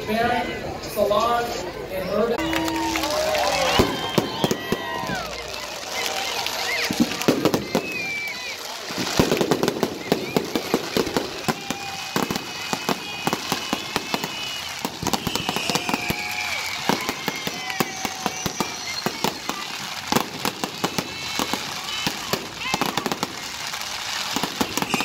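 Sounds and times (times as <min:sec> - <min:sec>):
fireworks crackling and banging: 0:02.4 - 0:25.0
firework whistle falling in pitch: 0:09.6 - 0:19.6.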